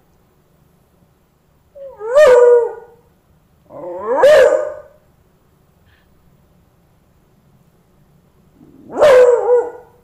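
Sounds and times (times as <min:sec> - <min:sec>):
dog howling: 0:01.8 - 0:03.0, 0:03.7 - 0:04.9, 0:08.7 - 0:10.0.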